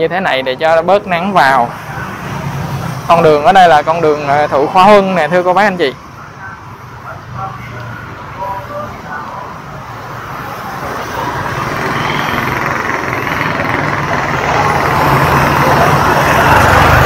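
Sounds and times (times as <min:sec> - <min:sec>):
city street traffic: 0:00.0 - 0:17.0
motorbike engine approaching: 0:10.1 - 0:17.0.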